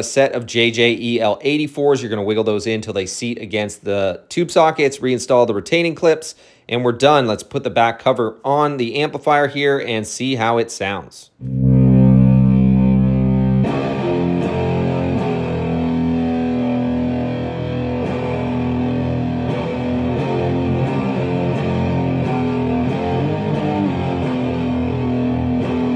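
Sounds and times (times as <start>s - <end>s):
distorted electric guitar riff: 11.4s - 25.9s.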